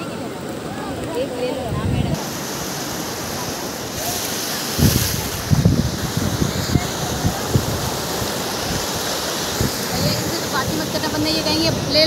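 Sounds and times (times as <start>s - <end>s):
surf washing up beach: 0.0s - 12.0s
wind buffeting microphone: 1.2s - 12.0s.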